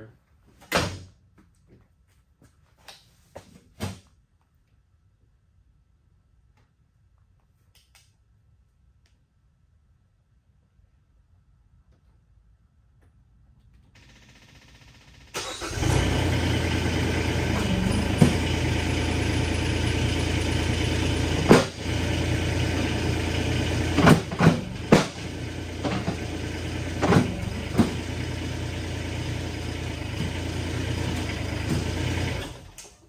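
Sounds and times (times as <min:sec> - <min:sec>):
loader engine starting and running: 0:13.8 - 0:33.0.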